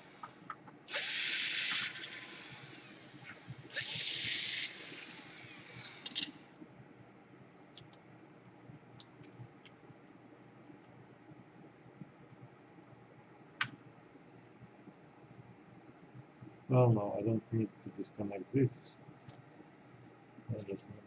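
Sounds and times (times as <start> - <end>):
cordless drill whirring: 0.0 - 6.5.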